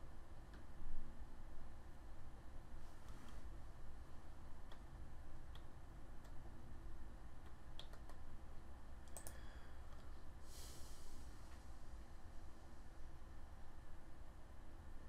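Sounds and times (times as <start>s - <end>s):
low steady hum: 0.0s - 15.0s
soft hiss: 0.0s - 15.0s
computer mouse clicks: 5.5s - 6.6s, 7.4s - 8.2s, 9.0s - 10.1s.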